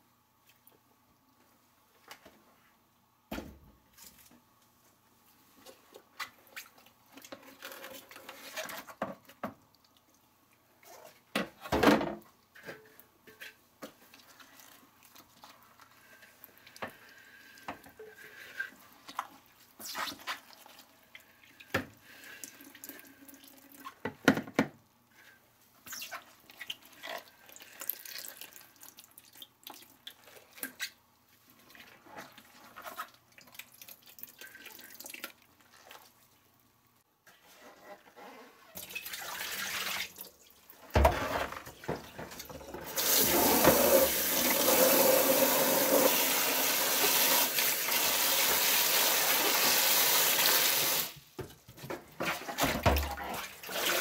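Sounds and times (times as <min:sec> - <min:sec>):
thump: 0:03.3 - 0:03.7
wet squelches: 0:18.3 - 0:21.7, 0:25.8 - 0:36.4
tap running into bucket: 0:40.9 - 0:51.2.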